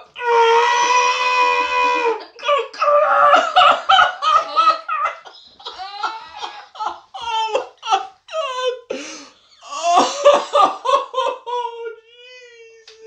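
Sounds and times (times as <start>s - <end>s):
laughter: 1.8s - 8.9s, 10.0s - 12.0s
man moaning: 9.6s - 10.4s.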